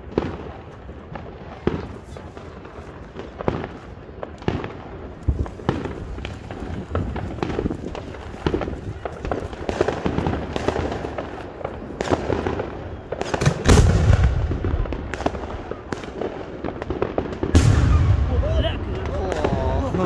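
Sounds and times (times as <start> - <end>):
fireworks bangs and crackles: 0.0 - 20.0
deep firework boom: 4.4 - 20.0.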